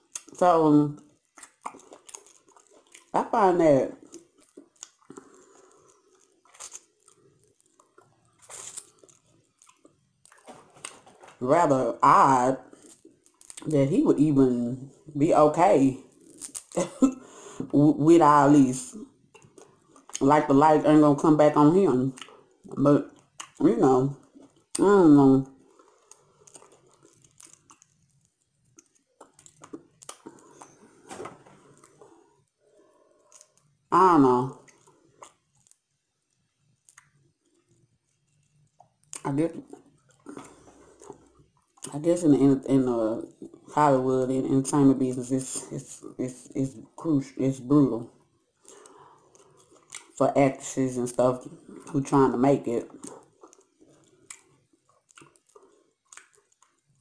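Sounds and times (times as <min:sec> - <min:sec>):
soft chewing: 0:00.0 - 0:03.2, 0:03.9 - 0:11.4, 0:12.6 - 0:13.7, 0:16.0 - 0:17.5, 0:19.0 - 0:20.2, 0:22.1 - 0:24.8, 0:25.4 - 0:33.9, 0:34.5 - 0:41.9, 0:48.0 - 0:50.2, 0:52.8 - 0:57.0
crab shell crunching: 0:01.0 - 0:03.2, 0:04.0 - 0:11.4, 0:12.7 - 0:13.7, 0:16.0 - 0:16.8, 0:25.5 - 0:33.9, 0:34.6 - 0:41.9, 0:52.9 - 0:57.0.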